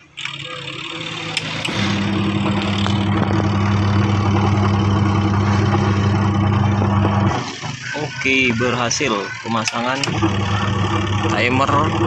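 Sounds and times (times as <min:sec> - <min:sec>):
washing machine motor humming: 0:00.0 - 0:12.0
timer knob clicks: 0:09.5 - 0:10.4.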